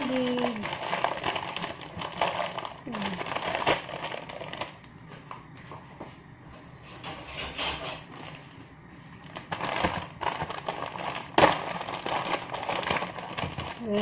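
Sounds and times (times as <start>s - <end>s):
plastic packaging crinkling: 0.0s - 4.9s, 8.0s - 8.6s, 9.2s - 14.0s.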